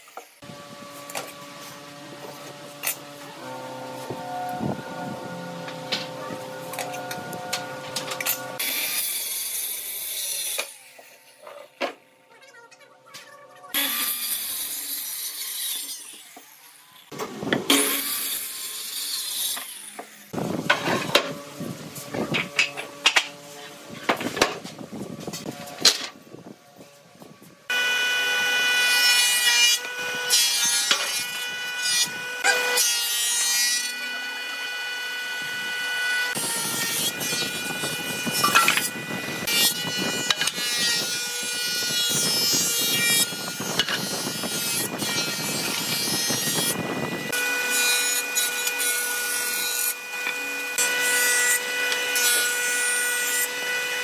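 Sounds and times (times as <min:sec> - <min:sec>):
boards being planed: 0:00.0 - 0:12.0, 0:13.7 - 0:26.1, 0:27.7 - 0:54.0
circular saw cutting board: 0:00.0 - 0:12.0, 0:27.7 - 0:54.0
planer motor whining: 0:00.4 - 0:08.7.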